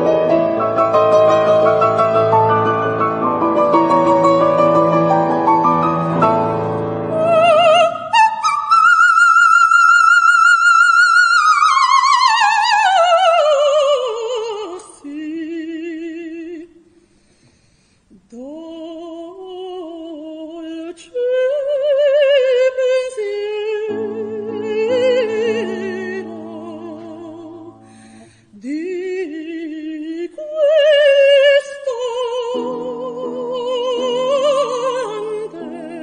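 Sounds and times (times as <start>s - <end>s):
operatic soprano singing: 7.0s - 16.9s, 18.1s - 27.9s, 28.5s - 36.0s.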